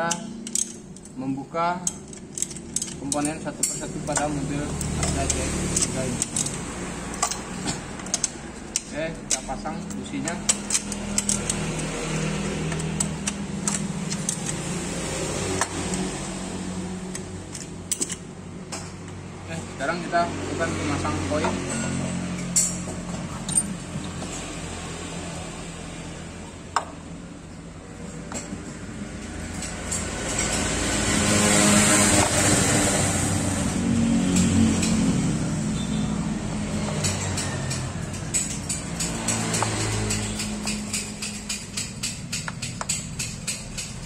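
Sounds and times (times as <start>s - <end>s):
metallic tool clicks: 0.0s - 1.2s, 1.8s - 14.7s, 36.9s - 44.0s
vehicle engine running: 31.9s - 44.0s.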